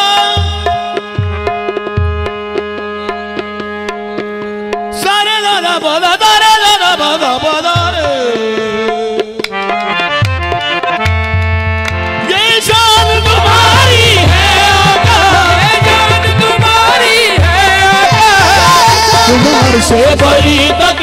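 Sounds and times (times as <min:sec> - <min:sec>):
harmonium chords: 0:00.0 - 0:21.0
tabla rhythm: 0:00.0 - 0:21.0
person singing wordless melody: 0:04.9 - 0:09.6, 0:12.2 - 0:21.0.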